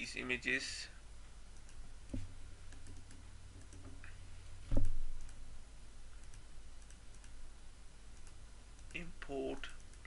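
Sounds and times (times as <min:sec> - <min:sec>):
low steady hum: 0:00.0 - 0:10.0
computer mouse clicks: 0:01.6 - 0:05.4, 0:06.2 - 0:07.4, 0:08.2 - 0:09.1, 0:09.7 - 0:10.0.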